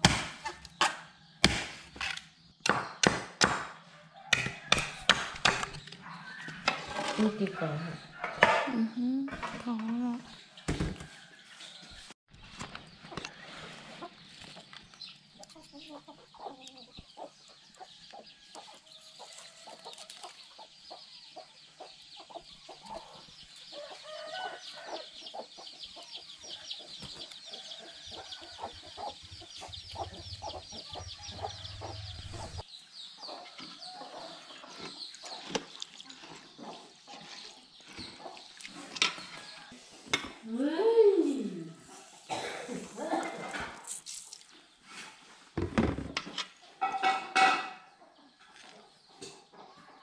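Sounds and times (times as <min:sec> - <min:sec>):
chickens clucking: 0:12.8 - 0:40.4, 0:46.6 - 0:50.0.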